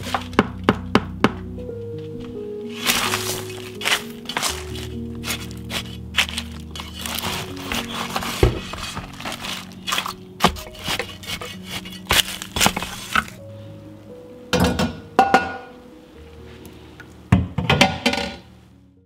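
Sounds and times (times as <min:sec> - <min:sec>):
soft background music: 0:00.0 - 0:19.0
kitchenware clinking and clattering: 0:14.6 - 0:15.7, 0:17.5 - 0:18.5.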